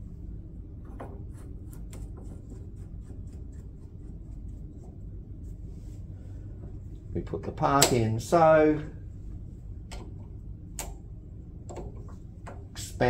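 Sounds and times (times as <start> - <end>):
low steady hum: 0.0 - 13.0
faint metallic clicks and taps: 9.9 - 11.0, 11.7 - 12.8.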